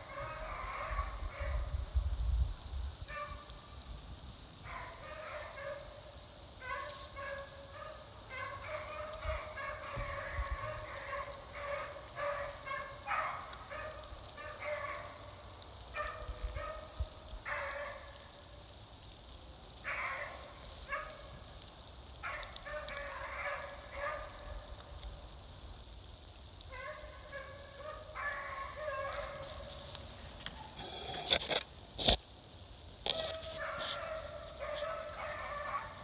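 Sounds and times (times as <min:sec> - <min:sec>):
hounds baying: 0:00.0 - 0:01.7, 0:04.6 - 0:18.3, 0:19.8 - 0:21.5, 0:22.2 - 0:24.8, 0:26.7 - 0:31.4, 0:33.0 - 0:36.0.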